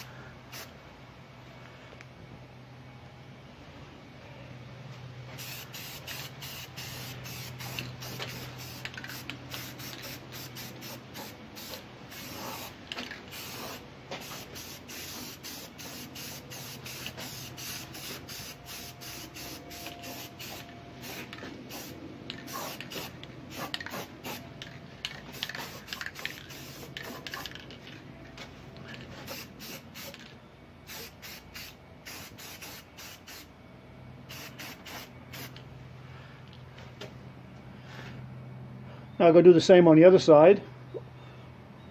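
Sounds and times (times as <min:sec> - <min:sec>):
spray paint can hissing: 0:00.0 - 0:00.7, 0:05.4 - 0:24.4, 0:25.1 - 0:27.6, 0:29.2 - 0:33.5, 0:34.3 - 0:35.6.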